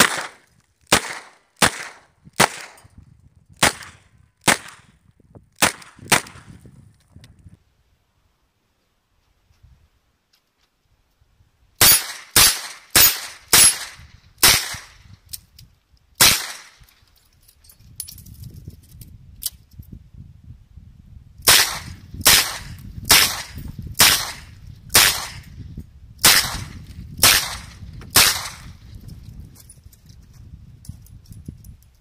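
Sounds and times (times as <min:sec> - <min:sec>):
revolver gunshots: 0:00.0 - 0:02.8, 0:03.6 - 0:04.9, 0:05.6 - 0:06.5, 0:11.8 - 0:15.0, 0:16.2 - 0:16.8, 0:21.5 - 0:25.5, 0:26.2 - 0:28.7.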